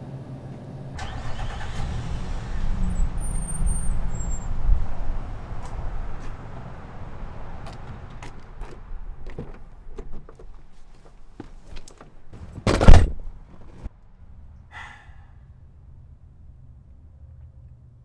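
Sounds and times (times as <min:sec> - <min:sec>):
person climbing into car: 0:07.6 - 0:13.9
car door opening: 0:11.7 - 0:13.9
car door shutting heavily: 0:12.4 - 0:13.3.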